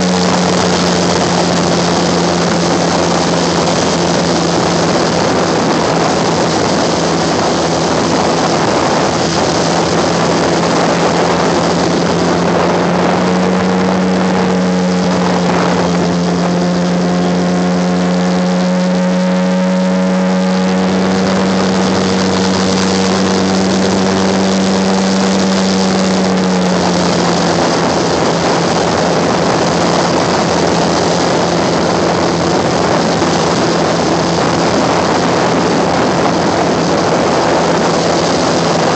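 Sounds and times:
airboat engine and propeller: 0.0 - 38.9.

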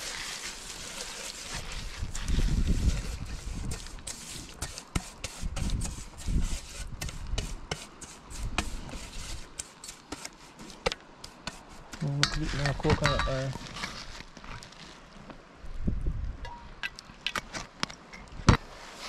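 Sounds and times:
brush scraping metal bowl: 0.0 - 14.1.

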